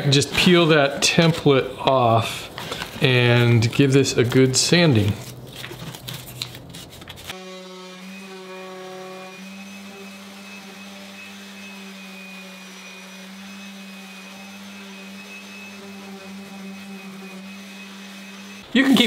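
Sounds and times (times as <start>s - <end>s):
orbit sander running: 7.3s - 18.7s.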